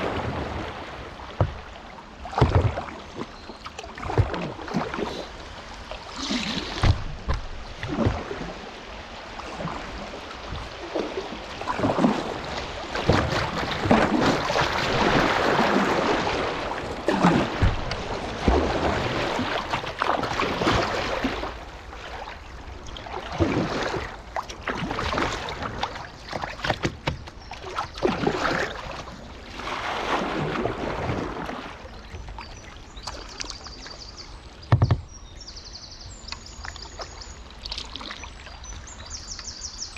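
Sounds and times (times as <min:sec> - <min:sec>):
paddle strokes splashing: 0:00.0 - 0:35.2, 0:36.2 - 0:39.5
water rushing past hull: 0:00.0 - 0:35.6.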